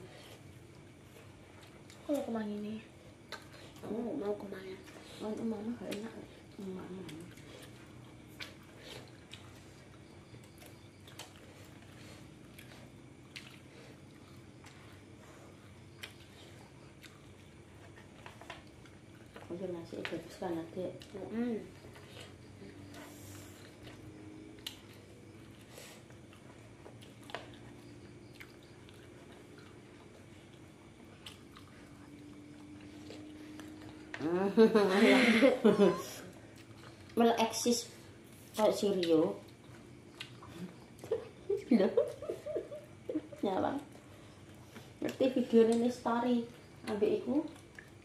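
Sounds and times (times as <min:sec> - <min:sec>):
chewing: 0:00.0 - 0:02.3, 0:03.0 - 0:04.0, 0:04.8 - 0:34.2, 0:36.3 - 0:37.2, 0:38.0 - 0:48.0
low steady hum: 0:00.0 - 0:48.0.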